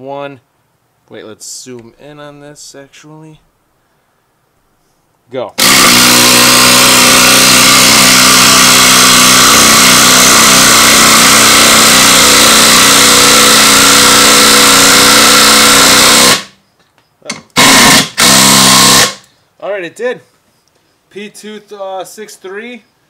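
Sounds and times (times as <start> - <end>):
impact driver hammering: 5.6 - 16.6, 17.3 - 19.2.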